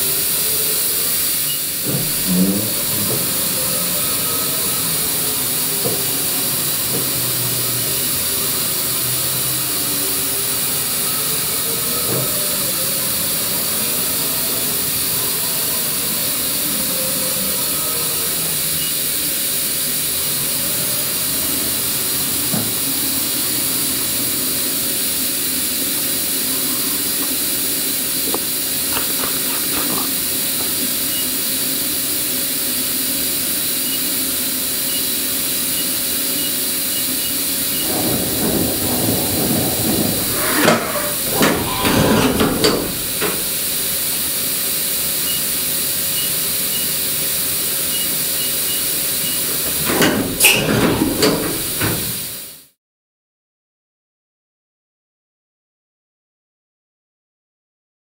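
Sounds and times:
steady hiss: 0.0 - 52.8
servo motors whining: 0.1 - 19.3, 34.9 - 44.0.

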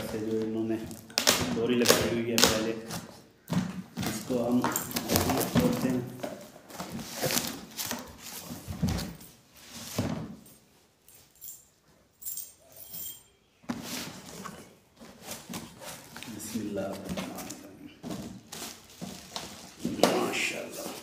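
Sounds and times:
cardboard box being unpacked: 4.9 - 9.1, 13.8 - 21.0.

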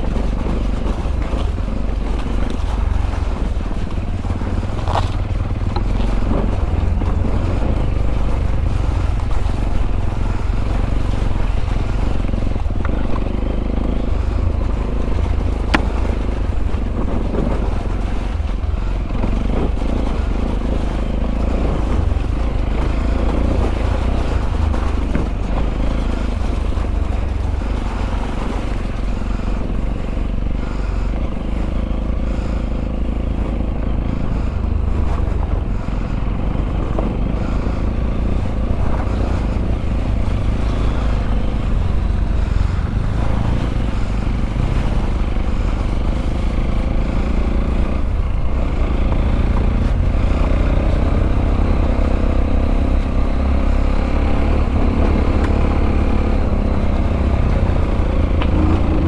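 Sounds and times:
motorcycle engine running: 0.0 - 59.0.

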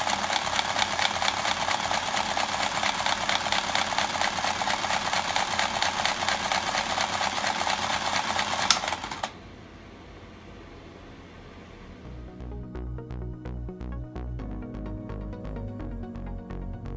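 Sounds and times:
motor rattling buzz: 0.0 - 9.3
faint steady hum: 0.0 - 16.1.

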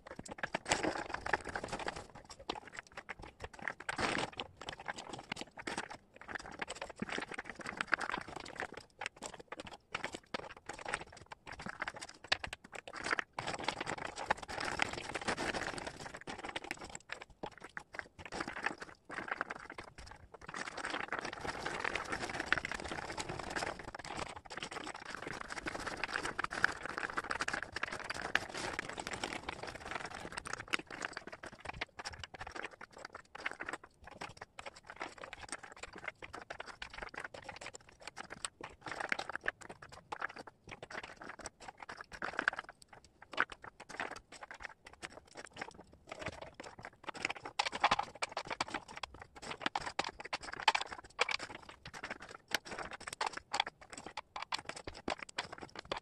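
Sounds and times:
wooden puzzle pieces clicking: 47.6 - 48.9, 49.7 - 51.4.

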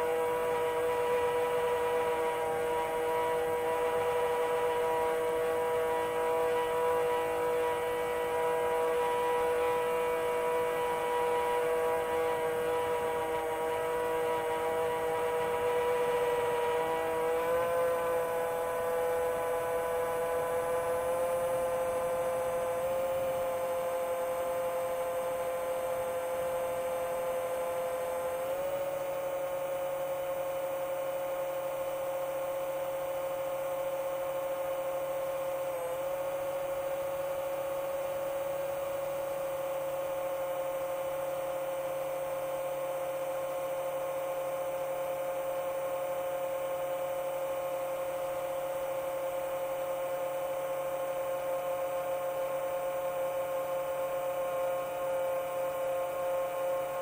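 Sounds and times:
quadcopter motors humming: 0.0 - 57.0.

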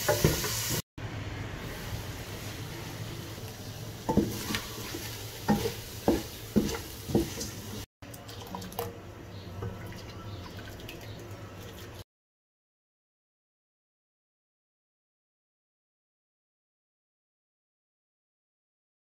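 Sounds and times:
wooden spoon knocking pot: 5.5 - 7.5.

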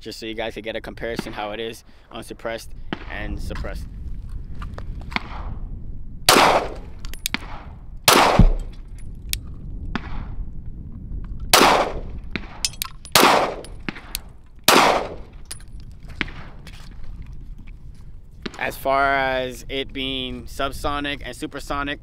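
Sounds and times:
pistol shots: 6.3 - 8.7, 11.5 - 15.3.

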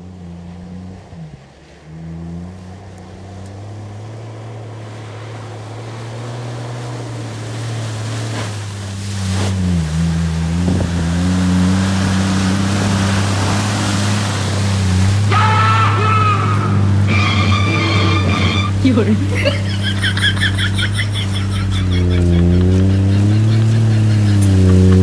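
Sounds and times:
water splashing under truck: 3.6 - 25.0
pickup truck engine running: 16.5 - 25.0.

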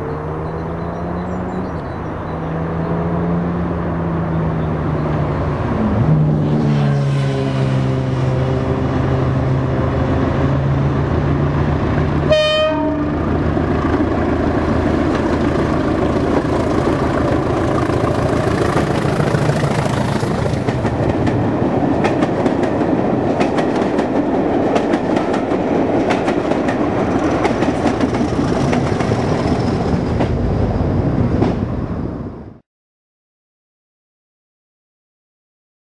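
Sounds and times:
diesel locomotive engine: 0.0 - 32.6
locomotive horn blast: 12.2 - 13.3
wheels clicking over rail joints: 13.5 - 30.4.

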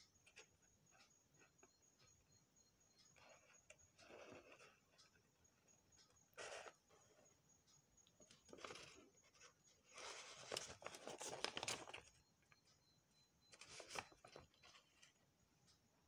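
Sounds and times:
fabric and paper rustling: 8.5 - 12.2, 13.6 - 15.1.

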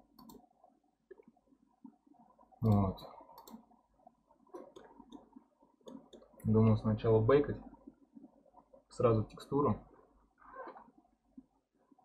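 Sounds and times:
computer mouse clicking: 0.1 - 0.5, 2.6 - 3.6, 4.5 - 6.5.

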